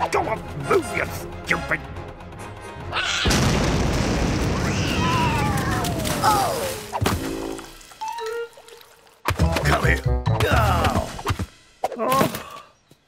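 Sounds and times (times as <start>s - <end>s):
music: 0.0s - 3.6s, 7.0s - 12.1s
cartoon bomb explosion: 3.2s - 6.6s.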